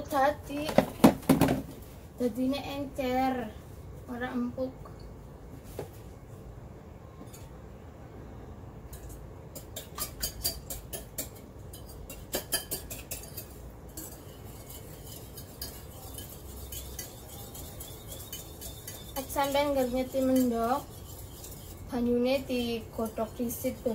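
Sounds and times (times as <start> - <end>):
whisk clinking against glass bowl: 8.9 - 23.9.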